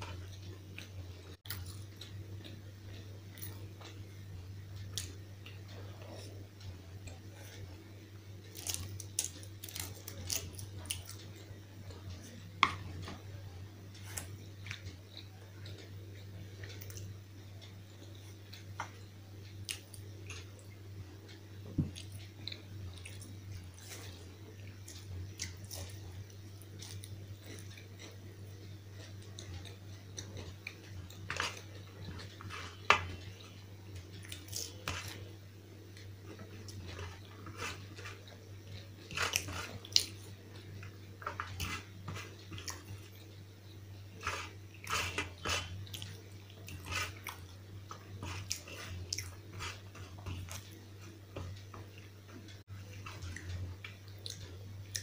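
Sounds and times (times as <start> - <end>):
chewing and crunching food: 0.0 - 55.0
steady low hum: 0.0 - 55.0.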